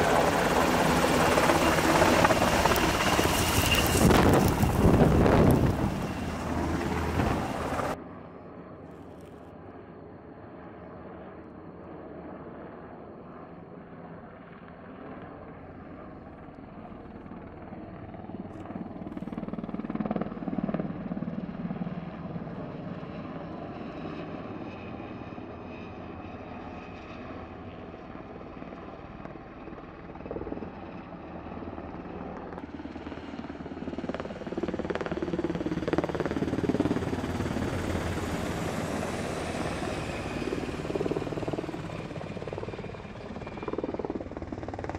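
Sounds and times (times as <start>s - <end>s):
helicopter rotor chop: 0.0s - 8.0s, 29.8s - 44.9s
helicopter turbine whine: 0.0s - 8.8s, 9.5s - 44.9s.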